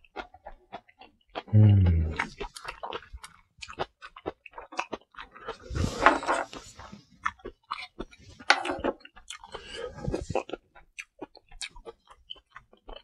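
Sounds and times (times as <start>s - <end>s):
person chewing with wet mouth sounds: 0.0s - 13.0s
person humming low: 1.5s - 2.4s.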